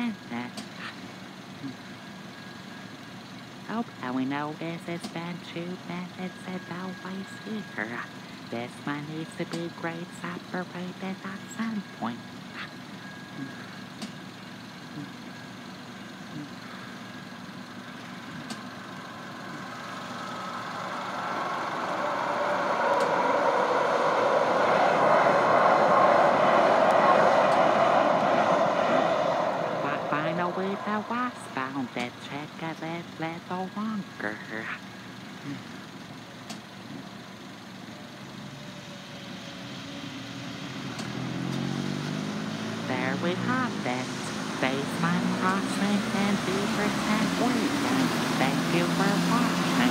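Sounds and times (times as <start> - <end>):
cars idling: 0.0 - 49.9
light rail train passing: 17.0 - 32.2.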